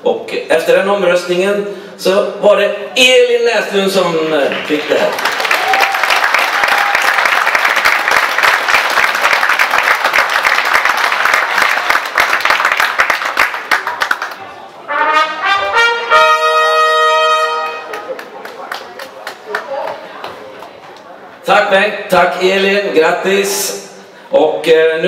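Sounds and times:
audience applauding: 4.4s - 14.5s, 17.8s - 20.8s
brass instrument playing notes: 14.8s - 18.1s.

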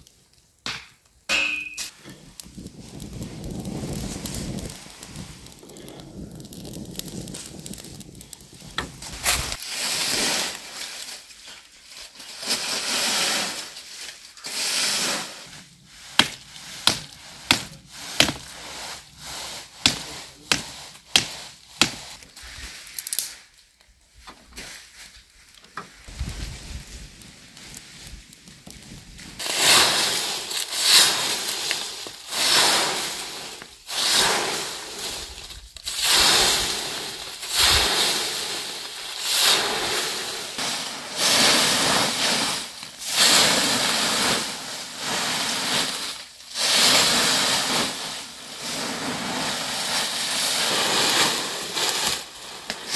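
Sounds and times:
broom sweeping leaves: 1.4s - 5.6s, 6.6s - 52.9s
dry wood cracking: 1.9s - 9.7s, 16.2s - 18.5s
fire blown into flame: 1.9s - 52.9s
dry leaves swishing: 8.9s - 23.6s, 29.3s - 52.9s.

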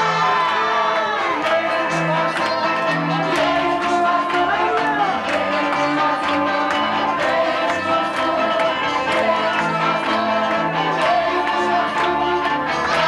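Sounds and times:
congregation singing: 0.0s - 13.0s.

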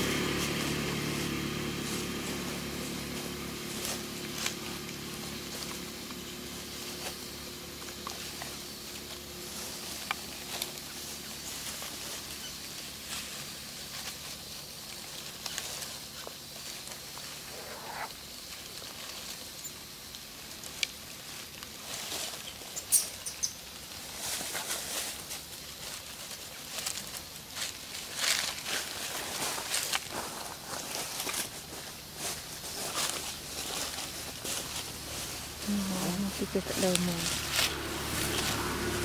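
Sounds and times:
dry leaves rustling and crackling: 0.0s - 39.0s.

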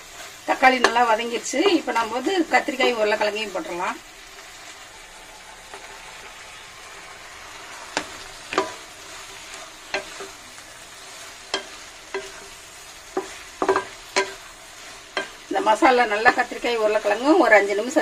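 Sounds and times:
spatula scraping a pan: 0.0s - 3.8s, 7.9s - 18.0s
spices sizzling in a pan: 0.0s - 18.0s.

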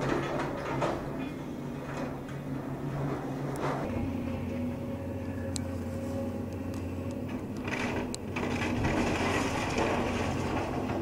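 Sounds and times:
excavator diesel engine running: 0.0s - 11.0s
boards splintering and debris clattering: 7.7s - 11.0s.

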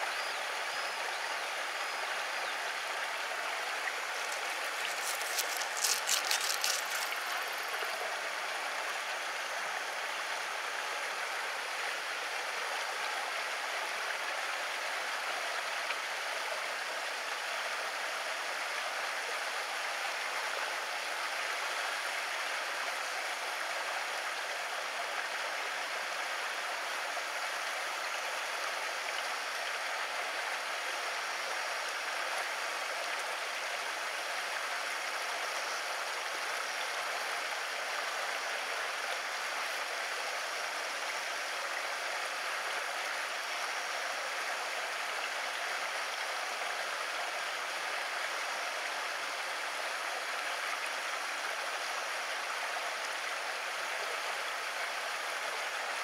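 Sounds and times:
water rushing: 1.5s - 10.8s.

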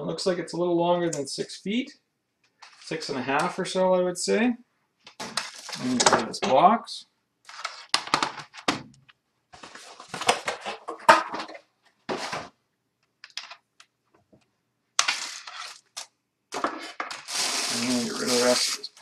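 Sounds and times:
plastic packaging crinkling: 5.3s - 6.0s, 17.0s - 18.9s.

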